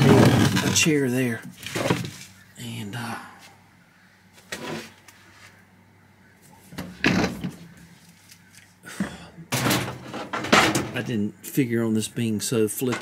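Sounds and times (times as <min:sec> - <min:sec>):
objects knocking and scraping: 0:00.0 - 0:02.3, 0:06.7 - 0:07.8, 0:09.0 - 0:11.1.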